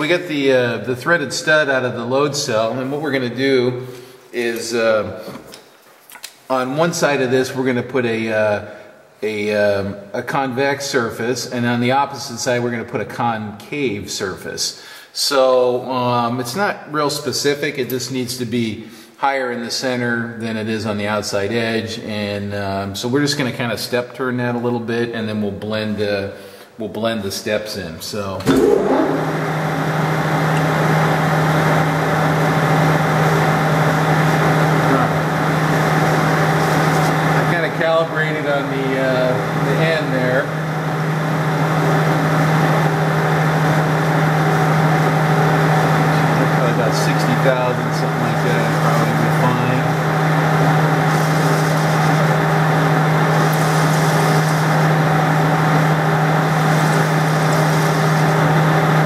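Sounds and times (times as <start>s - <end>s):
metal lathe whirring: 28.5s - 38.0s, 39.4s - 59.0s.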